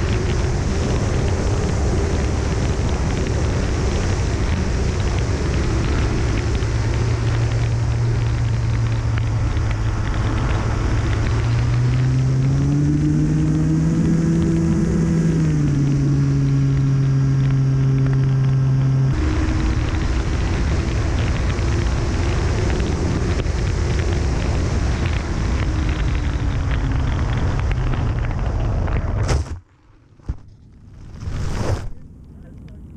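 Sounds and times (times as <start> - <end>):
model plane motor drone: 0.0 - 28.9
wind rushing over microphone: 0.0 - 29.6.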